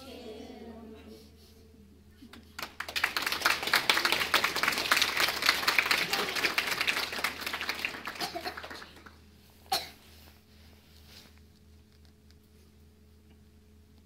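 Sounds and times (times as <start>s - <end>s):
crowd applause: 2.6s - 9.2s.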